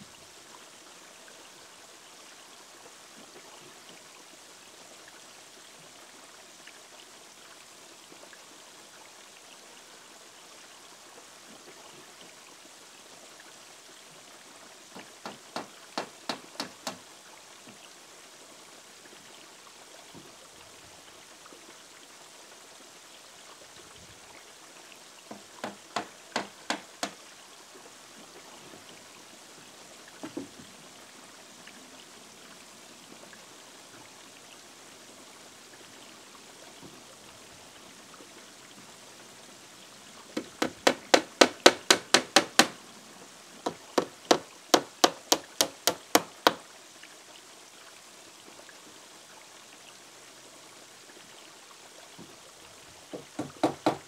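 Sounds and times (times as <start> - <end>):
trickle of running water: 0.0 - 54.0
hammer driving nails into wood: 15.0 - 17.0, 25.3 - 27.2, 40.4 - 42.8, 43.7 - 46.6, 53.2 - 54.0.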